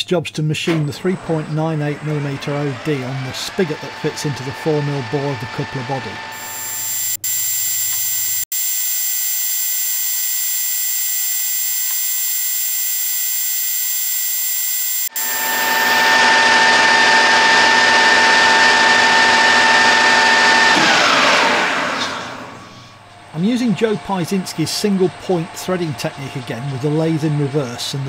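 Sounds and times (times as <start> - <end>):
lathe running with a whine: 0.9 - 8.4, 15.0 - 28.0.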